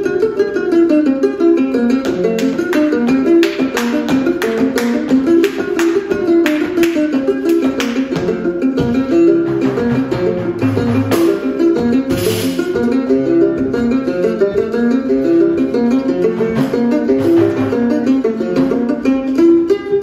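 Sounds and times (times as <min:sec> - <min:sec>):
plucked string melody: 0:00.0 - 0:20.0
sharp strummed strings: 0:09.1 - 0:19.1.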